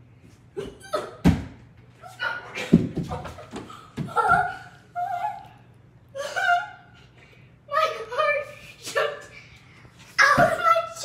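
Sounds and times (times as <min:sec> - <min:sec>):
girl laughing: 0:02.1 - 0:07.0.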